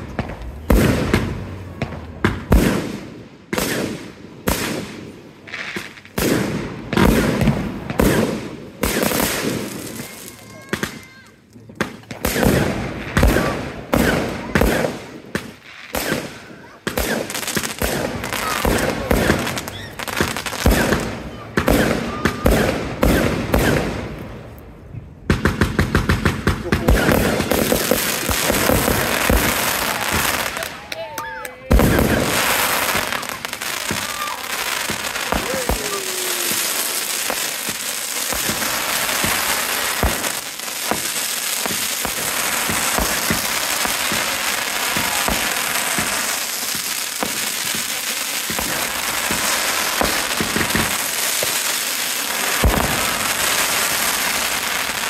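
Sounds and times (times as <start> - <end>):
firework shells bursting: 25.4 - 30.9, 31.7 - 55.0.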